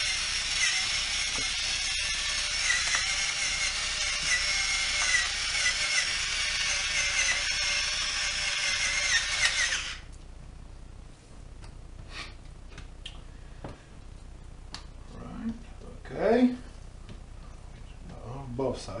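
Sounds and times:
electric pepper mill grinding: 0.0s - 10.1s.

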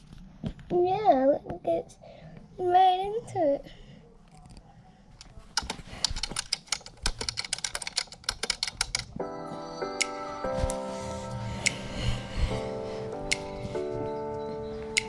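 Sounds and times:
rapid keyboard clicking: 5.5s - 9.2s
music with held notes: 9.2s - 15.0s.

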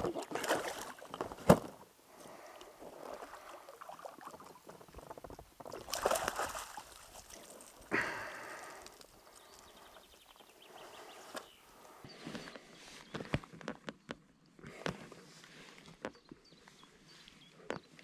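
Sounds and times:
fish splashing in water: 5.7s - 7.8s.

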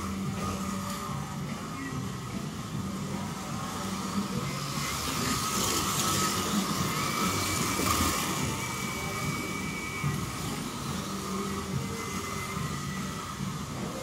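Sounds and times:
slot car motors whining: 0.0s - 14.0s.

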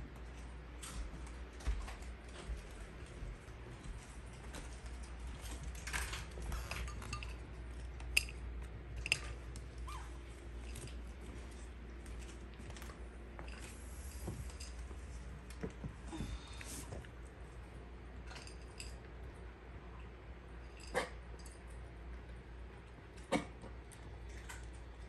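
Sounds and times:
dog eating from ceramic bowl: 4.3s - 15.7s, 17.7s - 19.4s, 20.1s - 25.0s.

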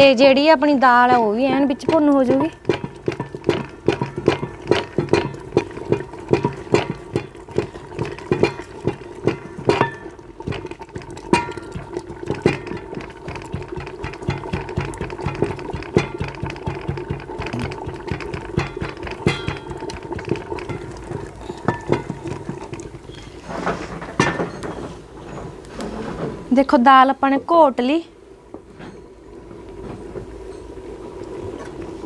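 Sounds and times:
wooden stick thudding in metal pot: 0.9s - 24.8s.

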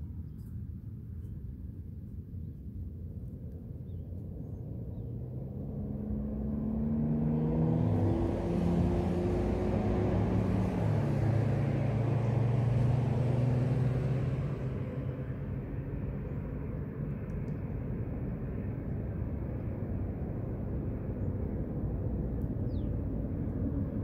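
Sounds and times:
low steady rumble: 0.0s - 24.0s
vehicle engine humming: 3.9s - 24.0s.

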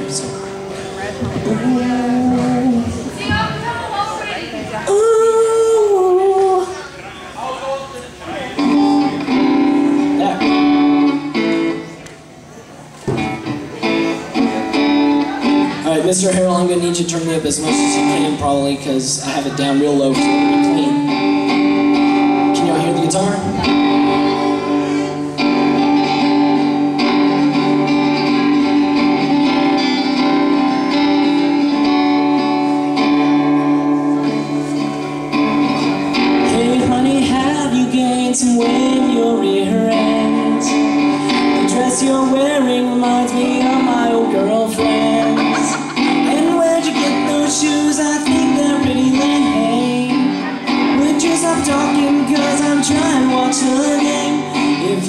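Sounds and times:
man singing: 0.0s - 0.6s, 1.2s - 3.2s, 4.9s - 6.9s, 8.6s - 11.3s, 15.7s - 29.8s, 36.1s - 55.0s
strummed guitar chords: 0.0s - 3.8s, 8.4s - 55.0s.

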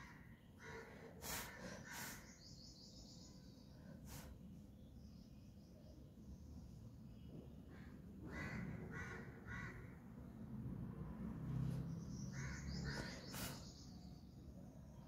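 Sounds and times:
crow cawing: 0.0s - 0.9s, 8.3s - 9.9s.

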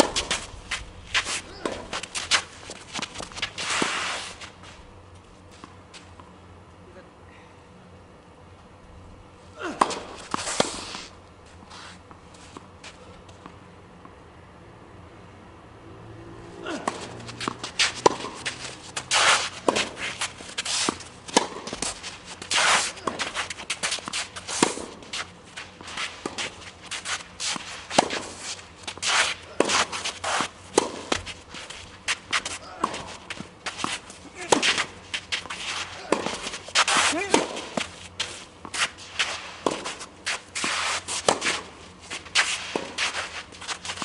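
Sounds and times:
tennis ball struck by rackets: 9.6s - 11.0s, 16.6s - 38.0s, 38.6s - 41.7s, 42.3s - 44.0s.

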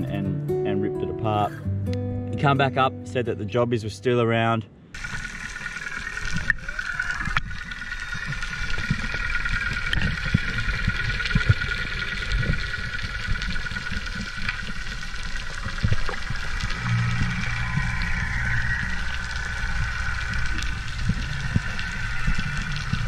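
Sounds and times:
high wavering whine: 5.0s - 23.0s
underwater rumbling and thuds: 5.0s - 23.0s.

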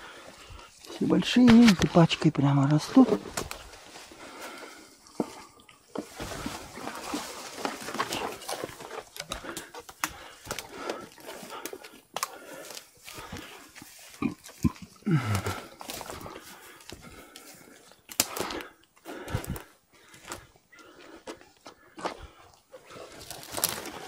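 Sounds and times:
footsteps through undergrowth: 0.0s - 24.0s
grass and leaves rustling: 0.0s - 24.0s
twigs snapping: 2.7s - 4.0s, 5.9s - 22.2s, 22.9s - 24.0s.

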